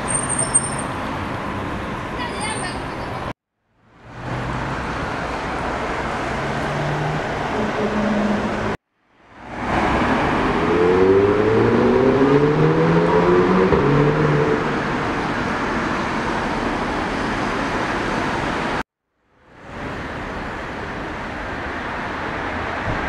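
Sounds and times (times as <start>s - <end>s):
street traffic noise: 0.0s - 23.0s
vehicle engine accelerating: 9.4s - 16.6s.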